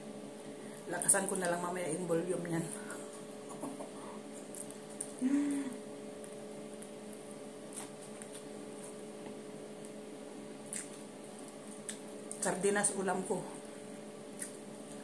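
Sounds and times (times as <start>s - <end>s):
low electrical hum: 0.0s - 15.0s
person humming: 5.2s - 5.8s
fingers picking food: 6.2s - 10.0s.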